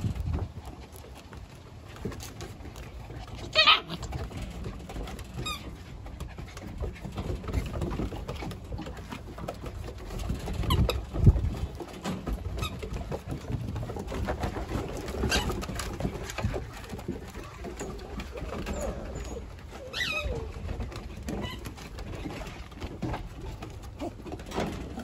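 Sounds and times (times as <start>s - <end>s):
paws scrabbling on wooden boards: 0.0s - 25.0s
puppy yips: 3.5s - 4.1s, 18.5s - 20.6s.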